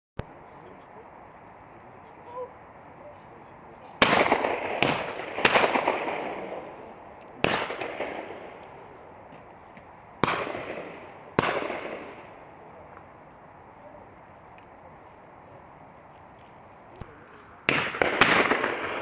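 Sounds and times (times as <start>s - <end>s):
shotgun shots echoing: 4.0s - 8.7s, 10.2s - 12.4s, 17.0s - 19.0s.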